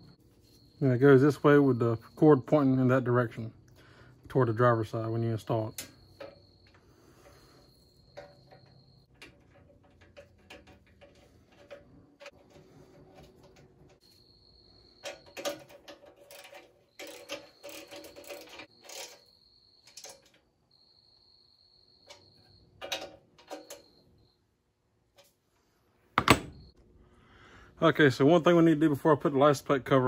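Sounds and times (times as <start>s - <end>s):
clicks and metallic rattles: 4.9s - 14.1s, 14.9s - 20.4s, 22.0s - 24.0s.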